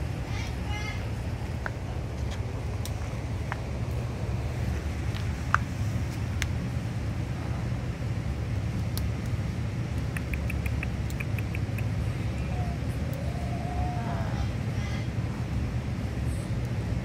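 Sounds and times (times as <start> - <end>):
steady low rumble: 0.0 - 17.0
parrot beak clicking on wood: 10.0 - 12.0.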